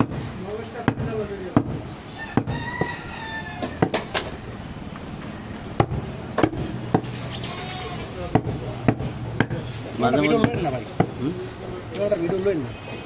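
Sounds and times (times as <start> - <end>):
knife chopping meat on wood: 0.8 - 1.8, 8.3 - 9.6.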